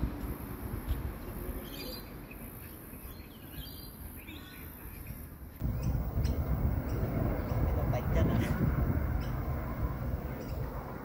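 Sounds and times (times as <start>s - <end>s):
bird chirps: 1.6s - 7.8s, 10.3s - 10.8s
low rumble: 5.6s - 11.0s.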